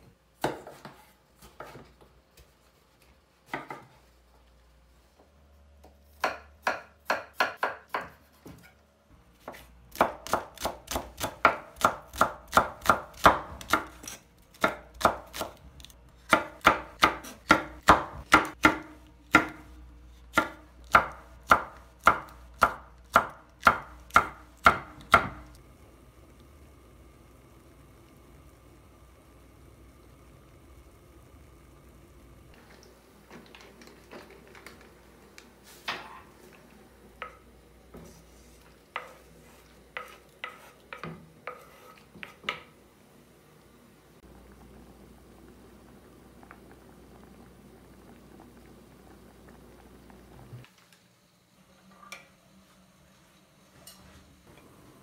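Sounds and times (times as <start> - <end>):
knife chopping on wooden board: 6.2 - 8.6, 40.0 - 42.7.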